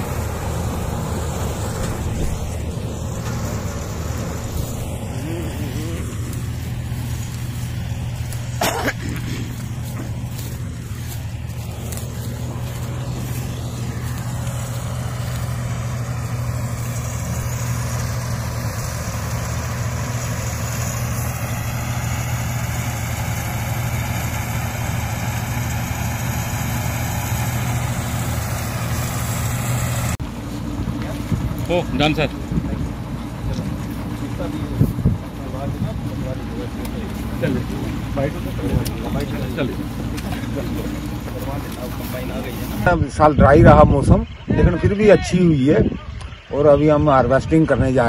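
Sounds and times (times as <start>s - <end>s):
cutter and threshing drum hiss: 0.0s - 30.2s
combine harvester engine hum: 0.0s - 48.0s.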